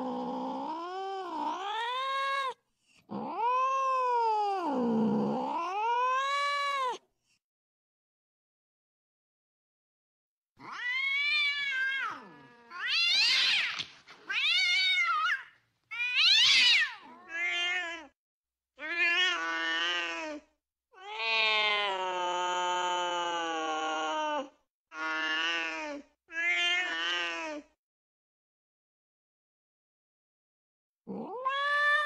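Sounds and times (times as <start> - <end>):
cats yowling: 10.6 - 18.1, 31.1 - 32.0.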